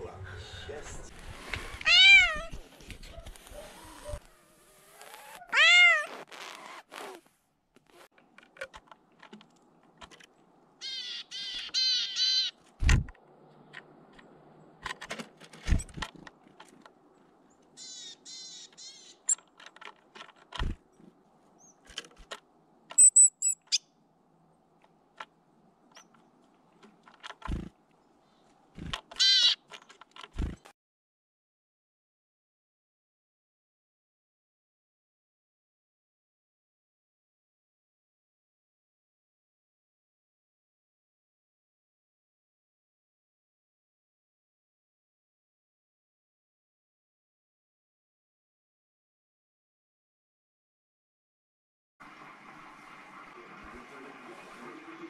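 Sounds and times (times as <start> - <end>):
cat meowing: 1.8 - 2.6, 5.4 - 6.1
small birds calling: 10.7 - 12.7, 17.0 - 19.6, 22.9 - 24.7, 25.8 - 29.7.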